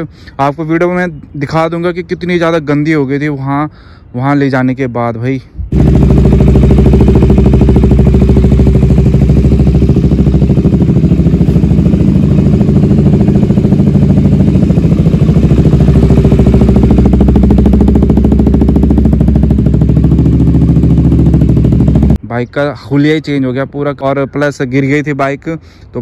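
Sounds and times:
motorcycle engine idling: 5.7 - 22.2.

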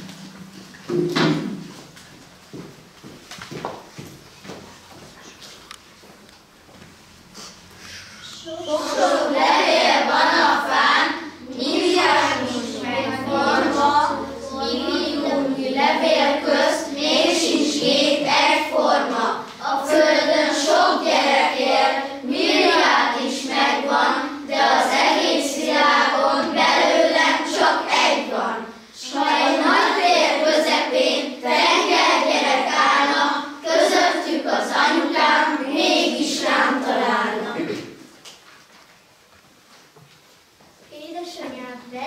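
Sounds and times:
children singing together: 8.0 - 38.0.

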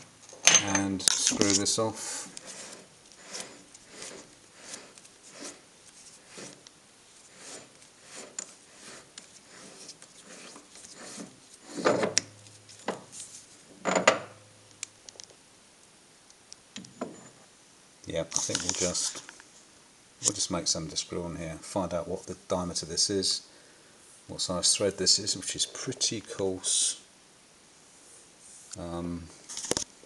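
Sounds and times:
threads rubbing as plate unscrews: 0.8 - 13.4.

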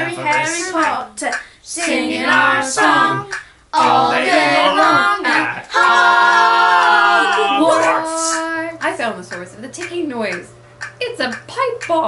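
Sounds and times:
children and woman singing: 0.0 - 8.7.

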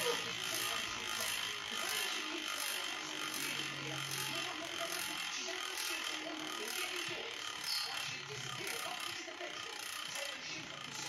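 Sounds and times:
bicycle freehub buzzing: 0.0 - 11.0.

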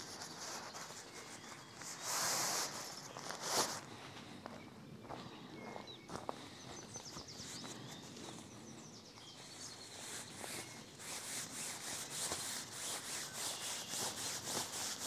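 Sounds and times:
tarp fabric rustling and rubbing: 10.0 - 15.0.

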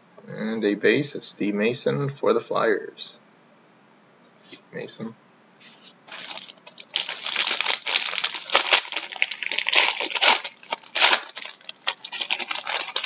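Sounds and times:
foil wrapper crinkling: 5.6 - 13.0.

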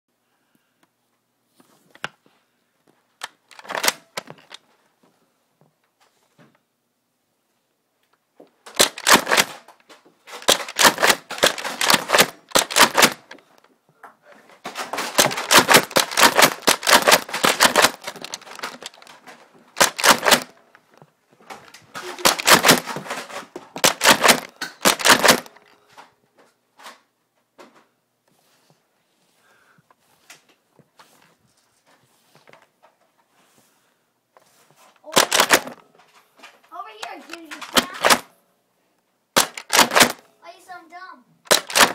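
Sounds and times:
foam dart blasters clicking: 3.5 - 4.3, 8.7 - 9.8, 10.4 - 13.4, 14.9 - 19.2, 19.8 - 20.6, 22.0 - 23.0, 23.8 - 25.6, 39.4 - 40.2, 41.5 - 41.9.

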